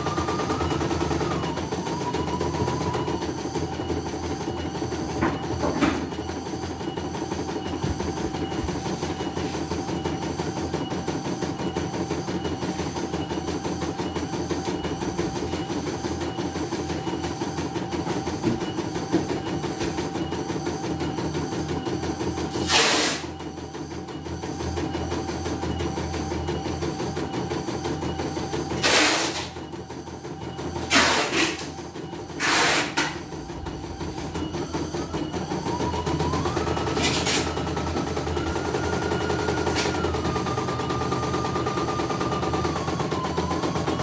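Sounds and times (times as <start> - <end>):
machine clacks: 0.0 - 44.0
embroidery machine stitching: 30.8 - 44.0.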